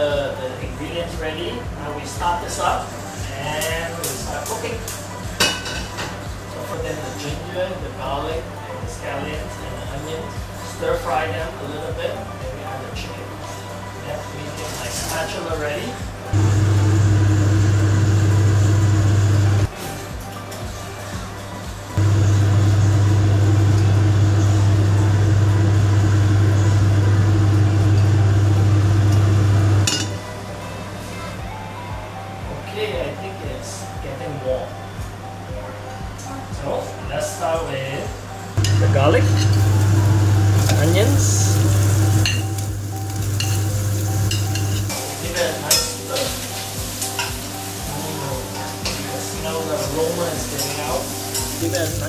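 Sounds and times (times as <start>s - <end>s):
loud steady low hum: 16.4s - 19.7s, 22.0s - 30.1s, 38.6s - 44.9s
food sizzling in hot oil: 38.6s - 49.3s, 50.0s - 52.0s.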